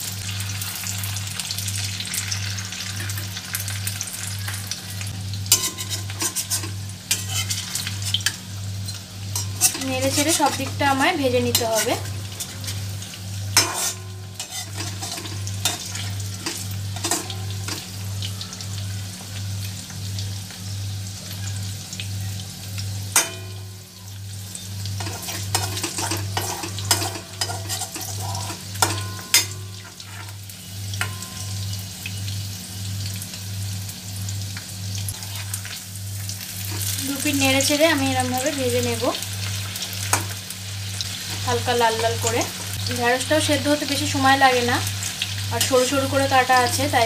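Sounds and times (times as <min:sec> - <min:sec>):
food deep-frying in oil: 0:00.0 - 0:47.0
spatula scraping and clinking pan: 0:05.5 - 0:08.4, 0:09.3 - 0:10.8, 0:13.6 - 0:17.9, 0:25.0 - 0:30.4.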